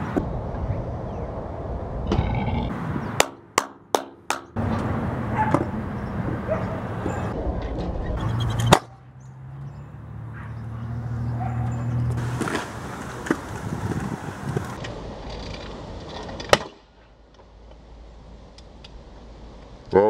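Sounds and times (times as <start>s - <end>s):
scooter wheels rolling on concrete: 10.5s - 19.8s.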